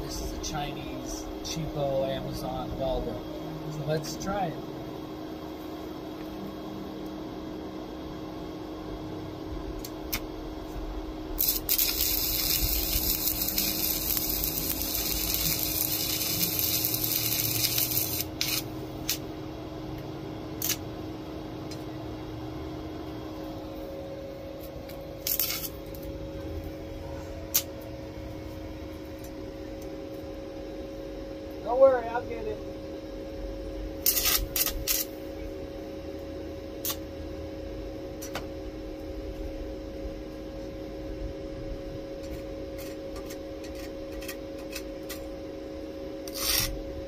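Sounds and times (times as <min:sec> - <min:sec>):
steady hum: 0:00.0 - 0:47.0
welding arc spits and snaps: 0:09.8 - 0:10.3, 0:11.4 - 0:19.2, 0:20.6 - 0:20.9, 0:24.9 - 0:26.1, 0:34.0 - 0:35.2, 0:46.2 - 0:46.8
welding arc hissing: 0:11.4 - 0:19.2, 0:20.6 - 0:20.8, 0:25.2 - 0:26.0, 0:34.0 - 0:35.2, 0:46.3 - 0:46.8.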